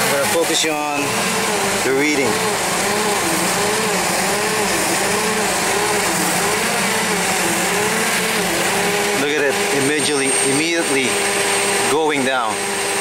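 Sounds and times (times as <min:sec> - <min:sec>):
forklift engine idling roughly: 0:00.0 - 0:10.4.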